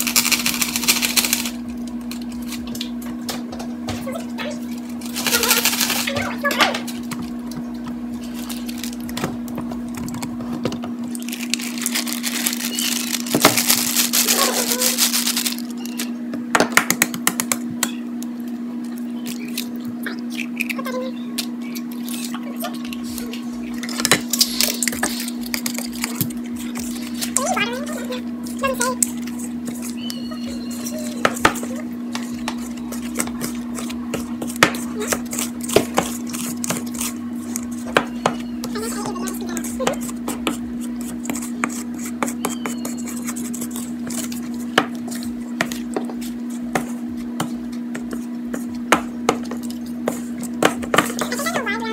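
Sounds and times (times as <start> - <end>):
steady low hum: 0.0 - 51.9
spoon scraping dough in bowl: 28.6 - 51.6.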